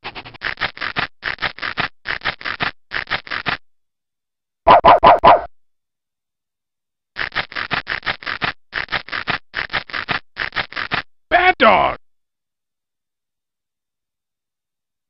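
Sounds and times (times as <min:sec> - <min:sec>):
cartoon dog sounds: 0:04.7 - 0:05.5
dog barking: 0:04.7 - 0:05.5.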